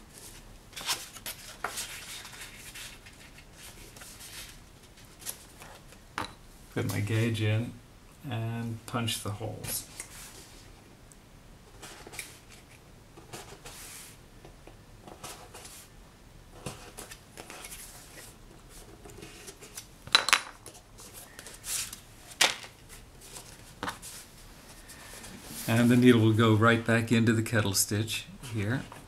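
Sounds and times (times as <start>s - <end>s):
paper rustling: 0.1s - 5.9s, 16.6s - 19.9s, 20.6s - 26.3s.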